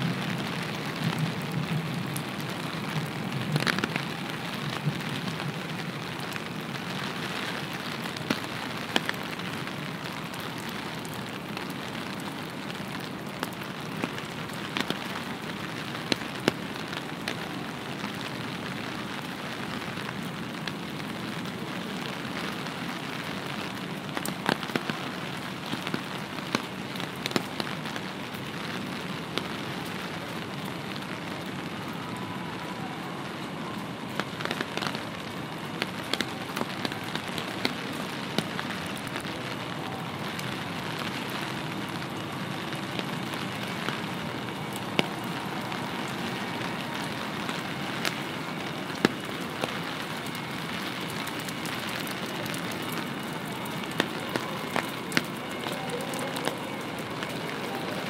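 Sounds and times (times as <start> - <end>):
steady rain hissing: 0.0 - 58.0
sharp raindrop ticks: 0.1 - 32.0, 34.1 - 58.0
water drips: 45.8 - 58.0.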